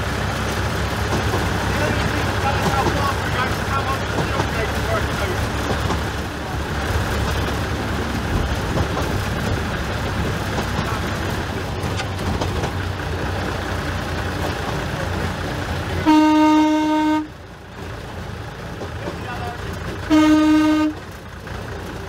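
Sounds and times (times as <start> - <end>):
diesel locomotive rumbling: 0.0 - 22.0
locomotive horn: 15.9 - 17.4, 20.0 - 21.1.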